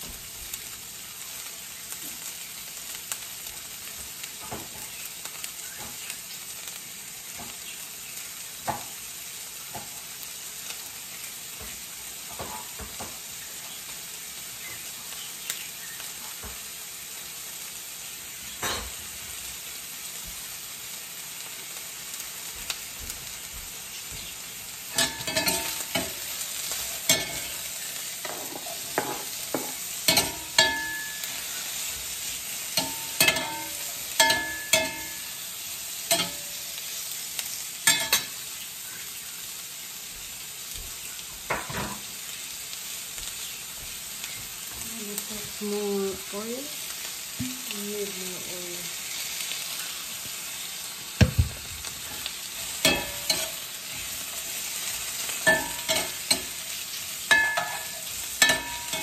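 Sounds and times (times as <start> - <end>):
onions sizzling in frying pan: 0.0 - 59.0
metal utensil scraping pan: 24.9 - 35.4, 36.0 - 36.8, 37.8 - 38.4, 51.9 - 59.0.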